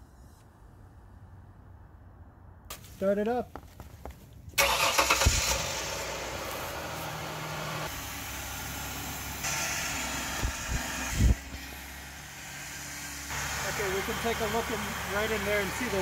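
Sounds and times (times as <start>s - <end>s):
car engine idling: 4.6s - 16.0s.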